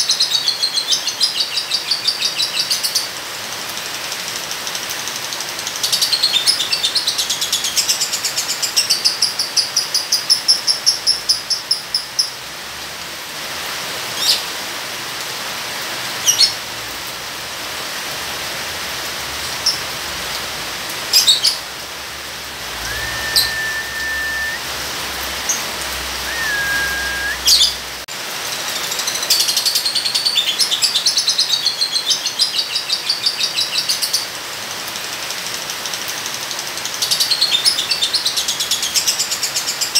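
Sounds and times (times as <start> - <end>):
rain hiss: 0.1 - 39.9
short flat whistled notes: 22.7 - 24.7, 26.2 - 27.7
sharp bird chirps: 22.8 - 24.6, 26.2 - 27.8.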